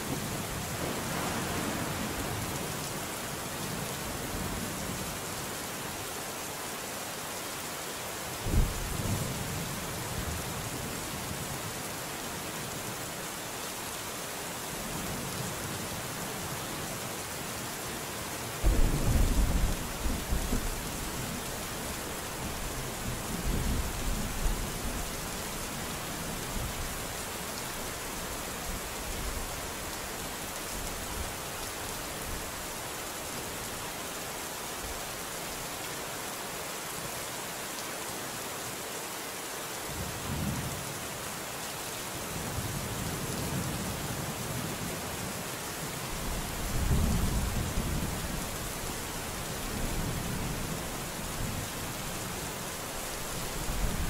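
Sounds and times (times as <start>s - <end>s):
steady rain hissing: 0.0s - 54.0s
thunder rolling: 18.6s - 20.8s.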